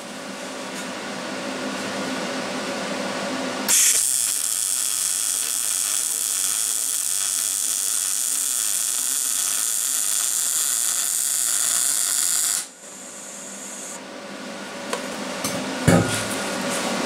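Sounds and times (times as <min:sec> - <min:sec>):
welding arc crackling hiss: 0:03.7 - 0:14.0.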